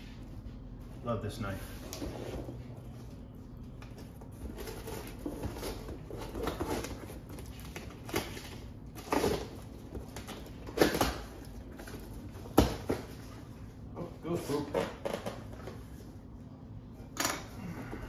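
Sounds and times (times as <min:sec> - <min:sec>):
cardboard scraping and rustling: 0:04.0 - 0:09.7.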